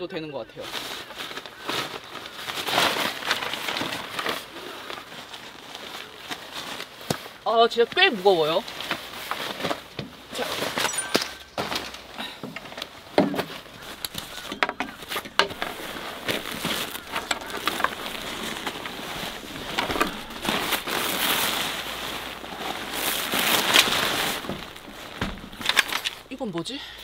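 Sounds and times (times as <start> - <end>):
plastic and fabric crinkling: 0.6 - 26.7
straps clicking and knocking: 8.7 - 26.4.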